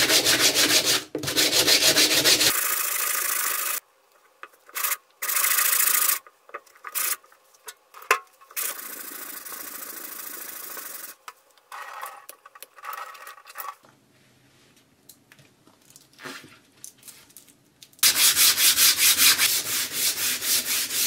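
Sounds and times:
abrasive pad scratching blade: 0.0 - 2.6.

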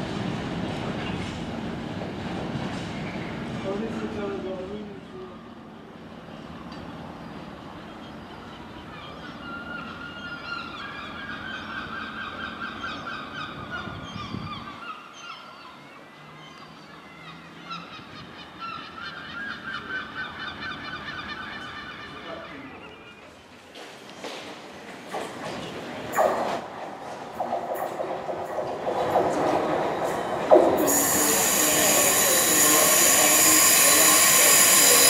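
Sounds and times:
low train rumble: 0.0 - 14.8, 16.7 - 35.0
train wheels squealing: 30.1 - 35.0.

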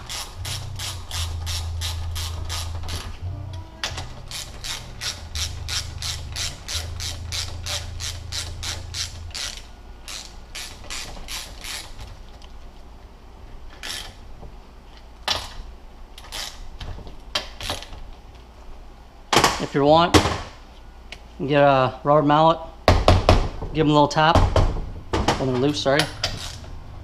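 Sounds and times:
ratchet wrench clicking: 0.0 - 3.0, 3.9 - 12.0, 13.8 - 14.2, 16.2 - 16.6, 26.0 - 26.6.

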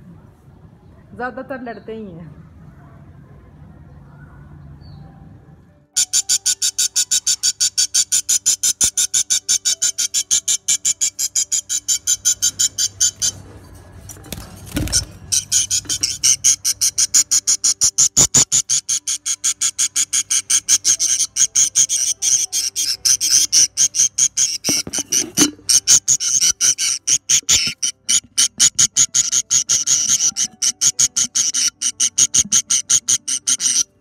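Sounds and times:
rapid high chirps: 6.0 - 13.4, 15.3 - 34.0.

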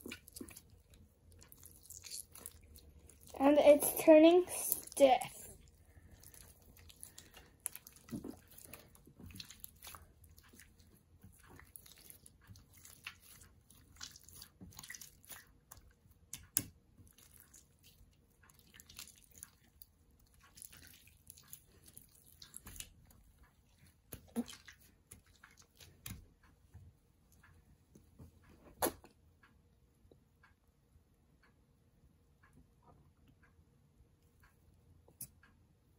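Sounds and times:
sticky slime clicks and squelches: 6.2 - 23.1.

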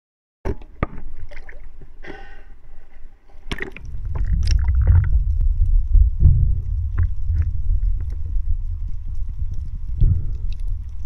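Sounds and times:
muffled underwater rumble: 0.5 - 11.0
water splashing and sloshing: 0.5 - 11.0
underwater knocks: 3.5 - 11.0.

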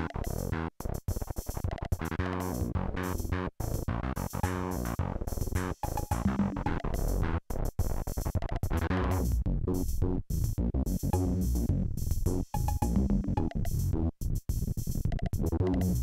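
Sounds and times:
synthesizer rhythmic pattern: 4.2 - 7.1, 11.0 - 13.9.

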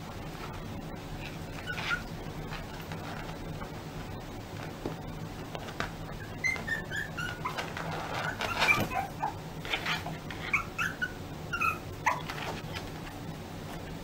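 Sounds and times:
loud scuffling noise: 1.2 - 10.5
puppy whimpering and yipping: 1.5 - 2.6, 6.2 - 12.9.

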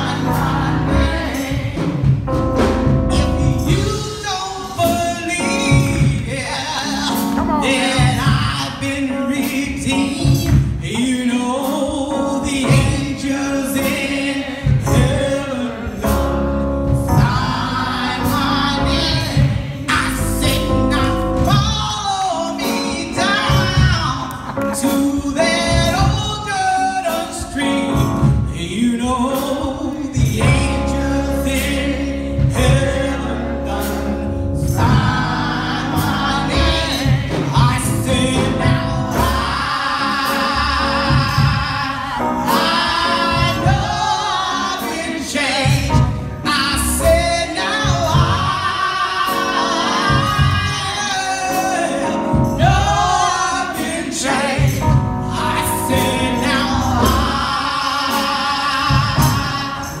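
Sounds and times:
music with steady beat: 0.0 - 60.0
woman singing into microphone: 7.3 - 8.2.

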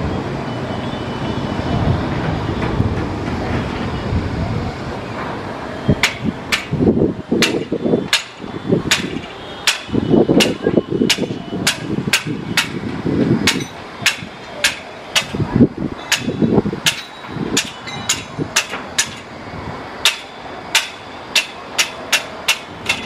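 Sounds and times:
sharp knocks: 7.4 - 12.8.

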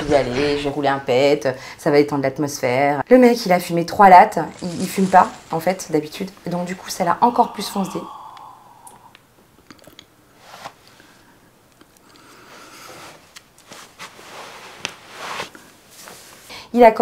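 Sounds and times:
person inhaling and exhaling smoke: 4.4 - 9.4
mouth clicks: 6.9 - 10.1.

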